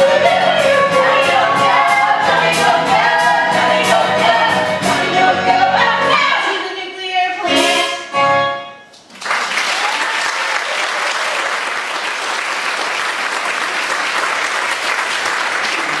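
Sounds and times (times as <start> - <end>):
audience applause: 9.1 - 16.0.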